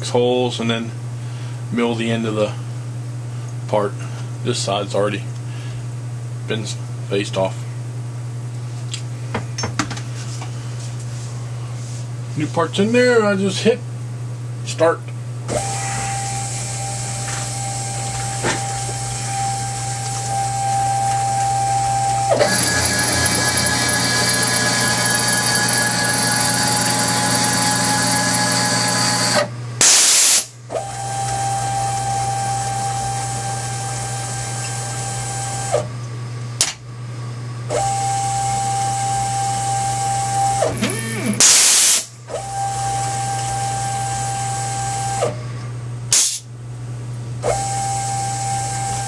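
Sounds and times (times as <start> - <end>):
milling machine motor whine: 15.5 - 36.0, 37.7 - 45.7, 47.4 - 49.0
loud air hisses: 29.8 - 30.5, 41.4 - 42.1, 46.1 - 46.5.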